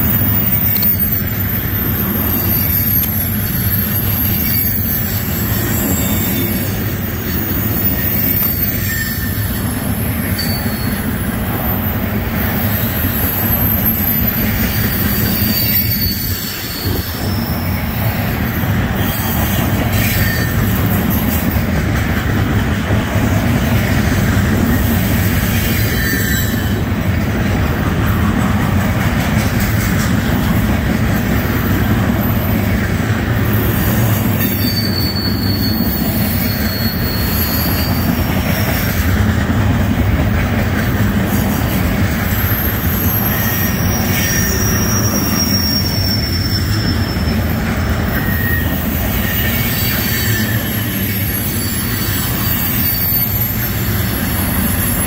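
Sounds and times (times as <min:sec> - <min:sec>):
high-pitched wheel squeals: 0:00.0 - 0:21.8, 0:24.6 - 0:27.0, 0:33.4 - 0:39.2, 0:41.2 - 0:55.0
freight train wheels rumbling: 0:00.0 - 0:55.0.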